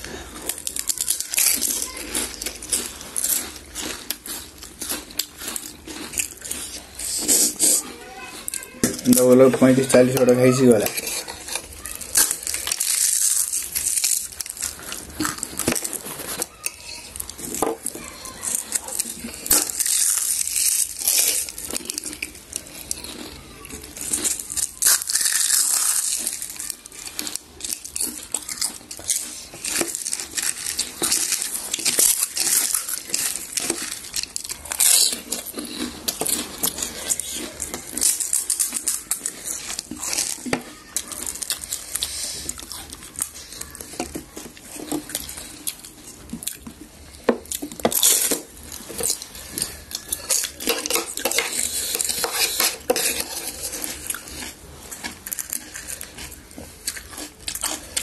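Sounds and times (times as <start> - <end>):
crisp shells crunching: 0.0 - 58.0
plates and utensils clinking: 47.8 - 54.1.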